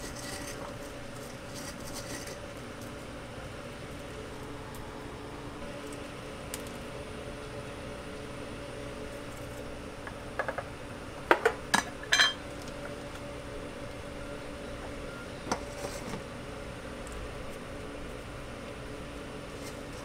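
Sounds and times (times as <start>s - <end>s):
hum of shop equipment: 0.0s - 20.0s
kitchenware clinking: 11.3s - 12.4s.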